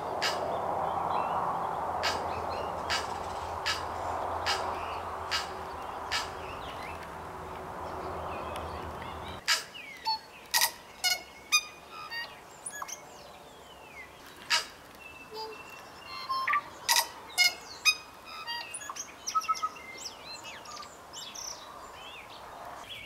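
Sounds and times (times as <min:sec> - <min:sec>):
steady background rush: 0:00.0 - 0:09.4
bird clicks and whistles: 0:02.0 - 0:04.7, 0:05.3 - 0:07.1.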